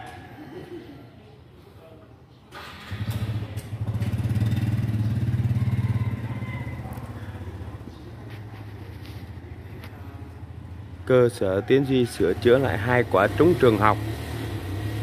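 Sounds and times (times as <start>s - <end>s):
motor scooter engine running: 2.8s - 9.4s.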